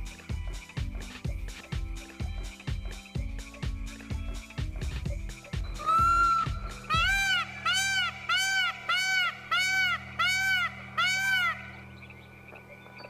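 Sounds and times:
peacock honking calls: 5.8 - 11.9.

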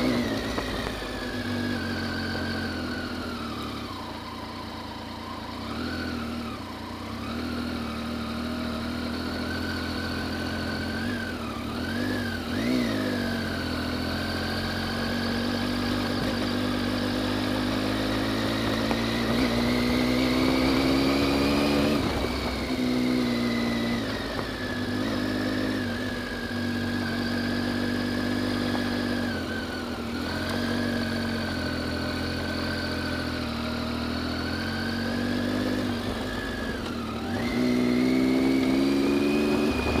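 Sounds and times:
motorcycle engine running: 0.0 - 40.0.

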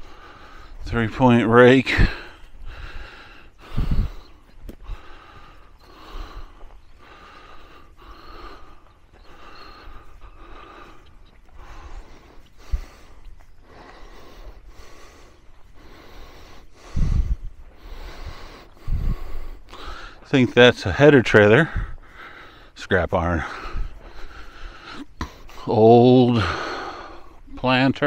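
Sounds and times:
person breathing: 0.0 - 1.2, 1.8 - 27.6
footsteps: 0.0 - 20.8.

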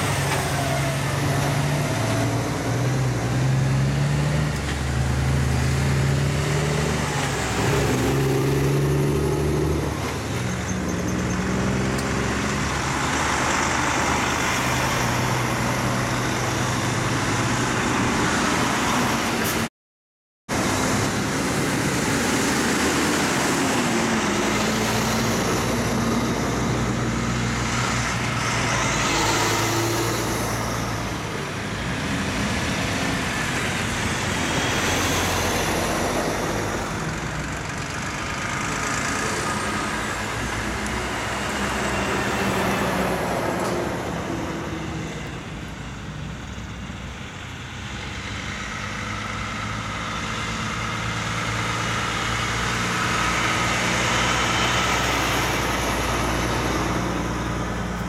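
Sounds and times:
diesel truck engines passing: 0.0 - 19.7, 20.5 - 58.0
tyres rolling on road: 0.0 - 19.7, 20.5 - 58.0.

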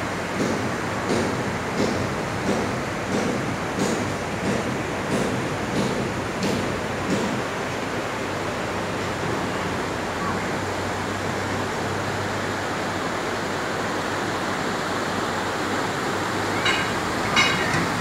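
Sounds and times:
river rushing over rocks: 7.6 - 18.0.

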